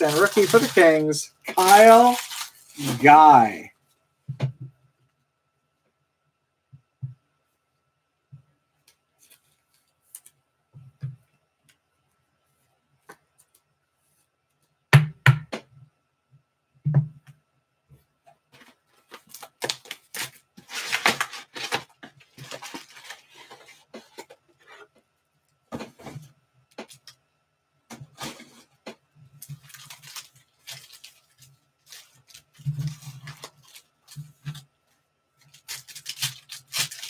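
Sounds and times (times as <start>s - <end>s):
foil wrappers crinkling and tearing: 0.0s - 3.6s, 19.0s - 24.2s, 29.3s - 34.7s, 35.4s - 37.0s.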